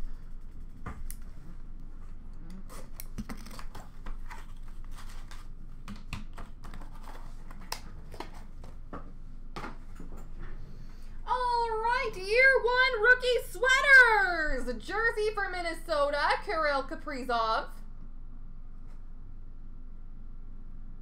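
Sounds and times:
paper rustling: 2.8 - 8.8.

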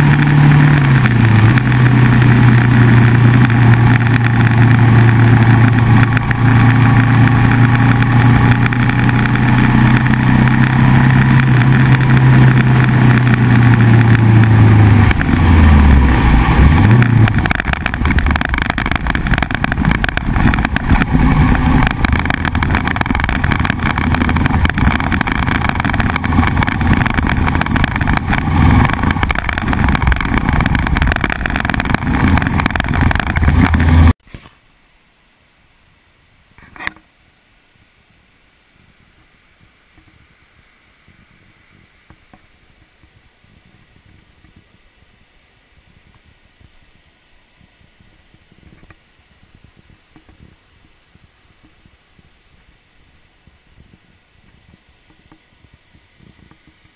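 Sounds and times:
motorcycle engine running: 0.0 - 34.2.

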